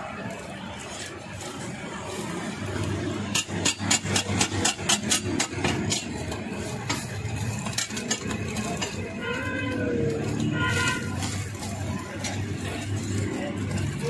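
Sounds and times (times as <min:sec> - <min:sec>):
metal spatula clinking on griddle: 0:03.3 - 0:09.4.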